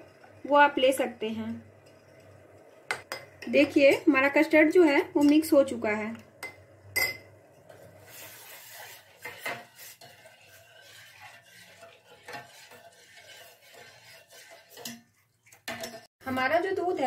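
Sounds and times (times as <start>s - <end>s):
spoon clinking against vessel: 6.4s - 7.3s
spoon stirring milk: 6.4s - 16.1s.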